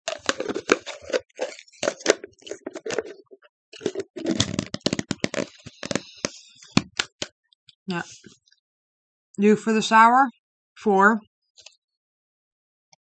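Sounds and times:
candy packaging crinkling: 0.0 - 7.3.

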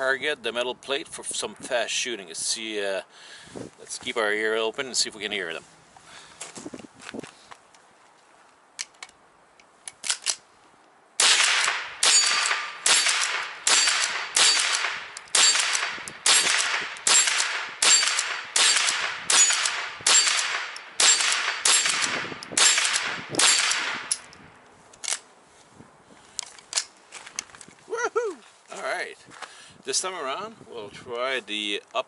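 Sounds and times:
rifle handling clicks: 8.8 - 10.4, 11.4 - 25.3, 26.4 - 27.6
rifle shots: 11.2 - 24.2.

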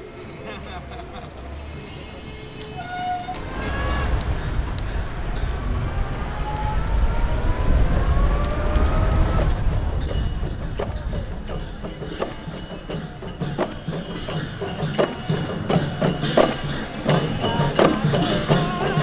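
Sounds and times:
engine whine: 0.0 - 14.4
low traffic rumble: 0.0 - 19.0
sharp percussion strikes: 3.4 - 19.0.

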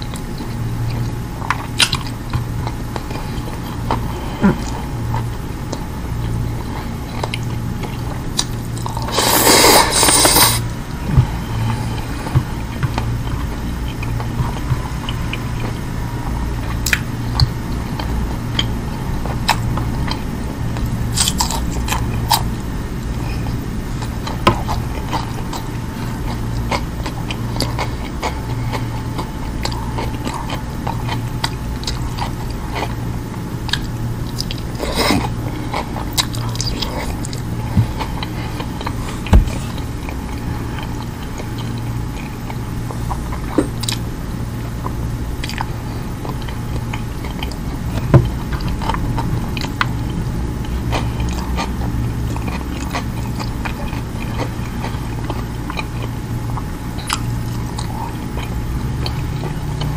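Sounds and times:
steady low hum: 0.0 - 59.9
chewing and wet mouth clicks: 16.8 - 18.8, 33.7 - 35.1, 40.0 - 44.0, 44.8 - 59.9.

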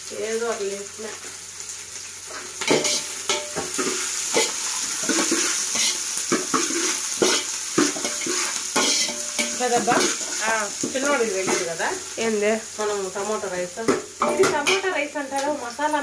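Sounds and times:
onions sizzling in oil: 0.0 - 16.0
ladle scraping metal pot: 2.7 - 10.4.

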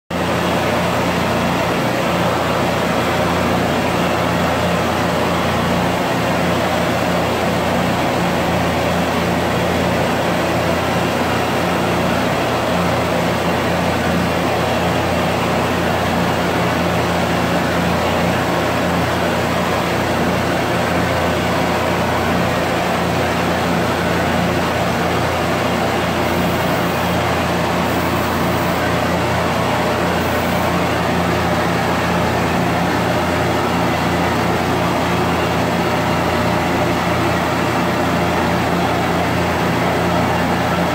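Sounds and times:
gas torch roaring: 23.8 - 34.4.

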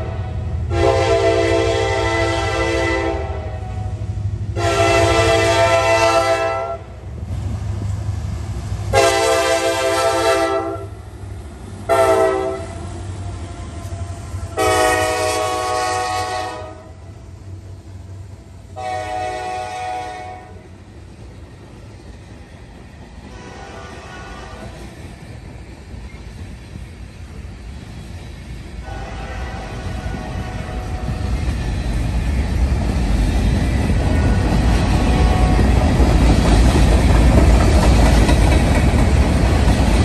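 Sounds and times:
locomotive air horn blasts: 0.0 - 7.0, 8.9 - 11.0, 11.9 - 17.1, 18.8 - 20.6, 23.3 - 24.8, 28.8 - 31.4, 35.0 - 35.8
diesel locomotive rumble: 0.0 - 40.0
freight cars rolling by: 20.7 - 40.0.

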